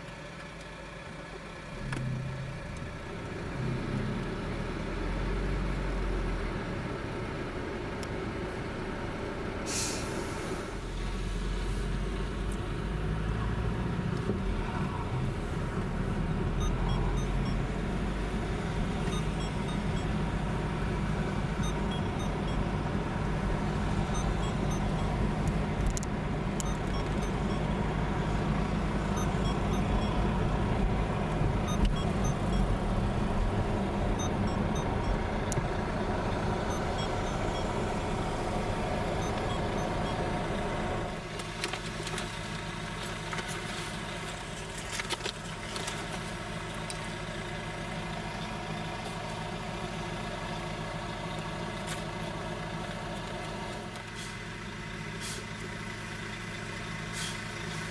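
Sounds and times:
car engine and road rumble: 0.0 - 57.9
short hiss: 9.7 - 10.6.

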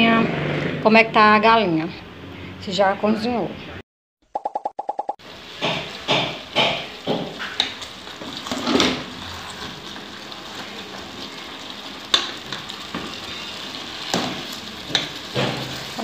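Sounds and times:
stew sizzling and bubbling in a pot: 5.2 - 16.0
wooden spoon knocking and scraping pot: 5.6 - 9.1.

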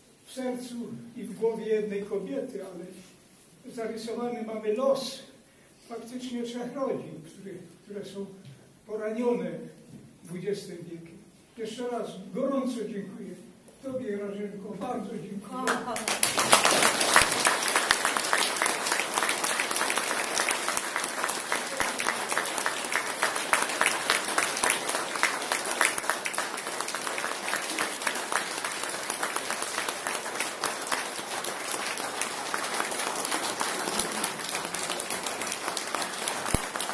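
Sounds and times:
audience applauding: 15.7 - 36.9.

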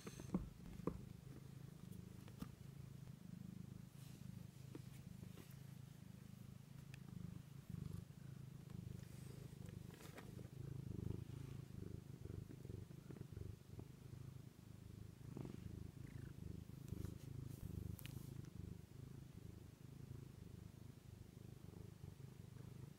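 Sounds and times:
cat purring: 0.0 - 22.9
faint clicks and rustles: 0.2 - 3.2, 4.0 - 6.0, 6.6 - 11.7.

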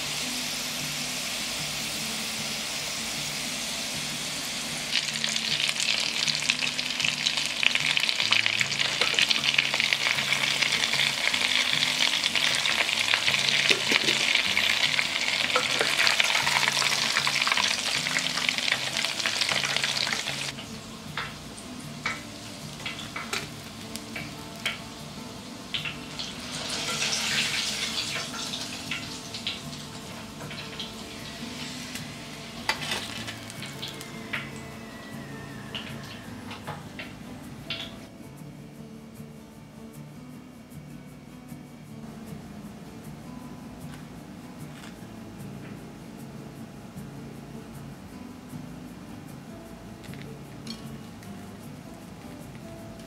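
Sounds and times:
food deep-frying in sizzling oil: 0.0 - 38.1.

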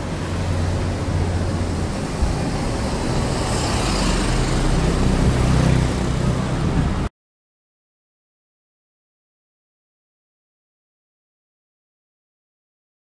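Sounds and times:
road traffic rumble: 0.0 - 7.1.

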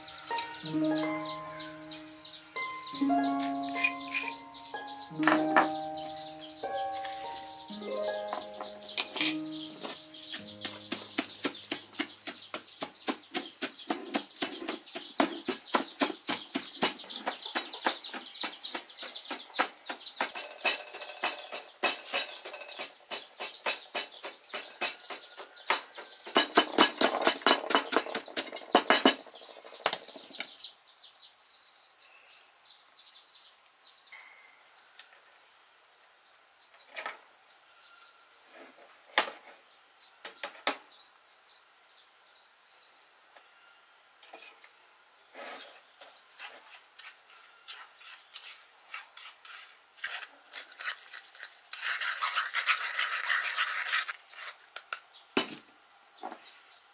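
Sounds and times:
birds chirping faintly: 0.0 - 56.9
kitchen utensils tapping: 3.2 - 12.4
pestle pounding in mortar: 10.4 - 29.2.

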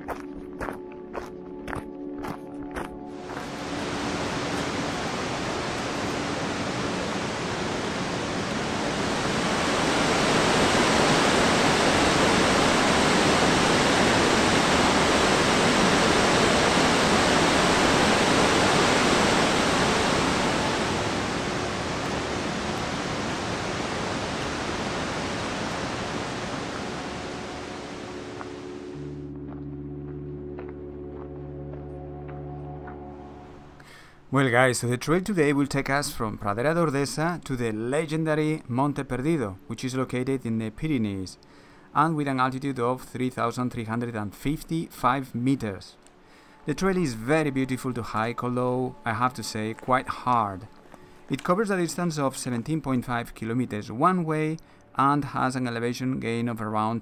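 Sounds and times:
waterfall rushing: 3.2 - 29.1.

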